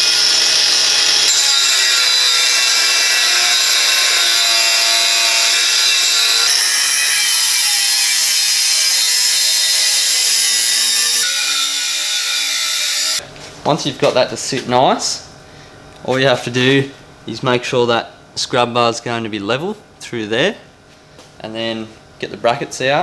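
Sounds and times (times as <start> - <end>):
angle grinder cutting steel: 0.0 - 13.2.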